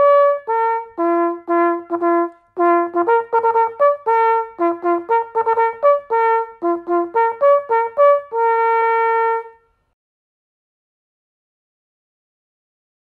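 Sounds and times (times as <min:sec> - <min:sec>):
solo brass instrument playing: 0:00.0 - 0:09.9.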